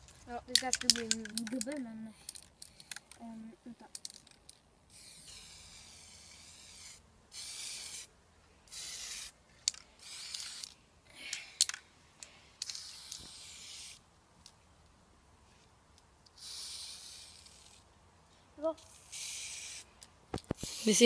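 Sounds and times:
sharp clicks: 0.5 - 3.2
aerosol spray hissing: 16.4 - 17.8, 18.9 - 19.9, 20.6 - 21.0.

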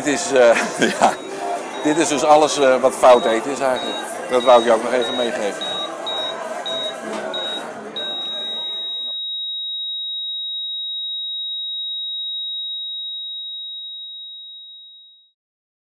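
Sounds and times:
short beep: 1.7 - 9.4
heart monitor flatline tone: 3.0 - 12.9.

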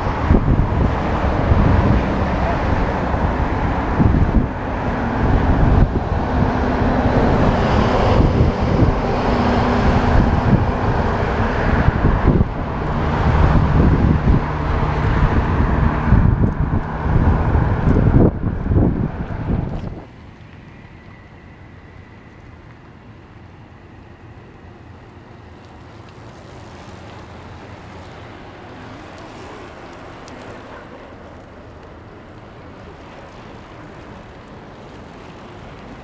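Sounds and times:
wind buffeting microphone: 0.0 - 22.1
car traffic: 0.0 - 36.0.

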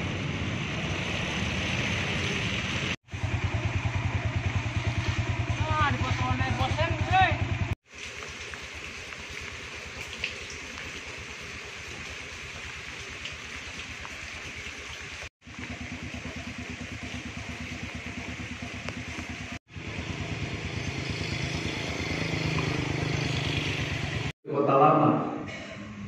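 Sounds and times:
motorcycle engine running: 2.5 - 7.8, 15.4 - 24.4.

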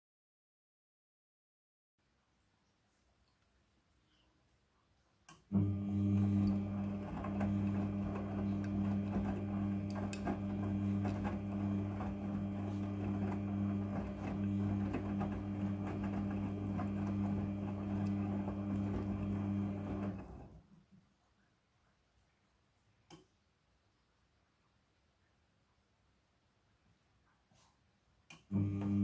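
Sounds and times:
washing machine motor hum: 5.5 - 20.6, 28.4 - 29.0.

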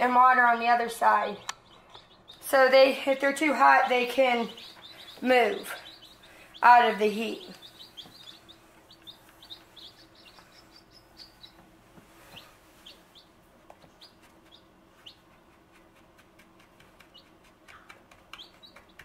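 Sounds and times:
baby chicks peeping: 0.0 - 19.0.

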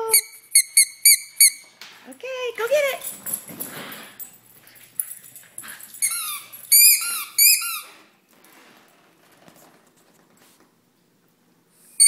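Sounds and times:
squeaky toy ball squeaking: 0.1 - 1.6, 6.0 - 8.0.

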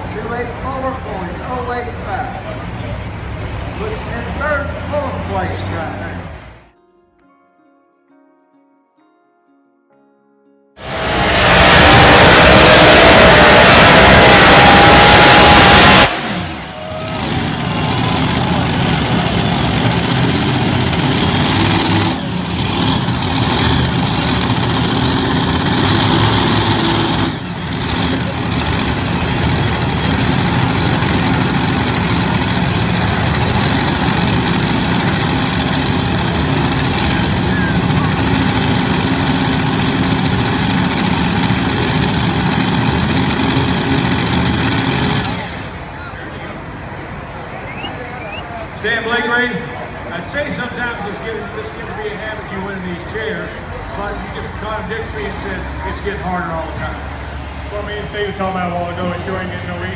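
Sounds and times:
heavy tractor engine idling: 16.2 - 45.9.

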